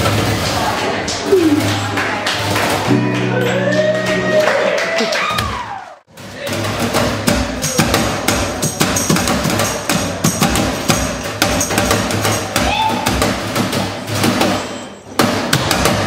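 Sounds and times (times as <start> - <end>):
live music: 2.4 - 5.5.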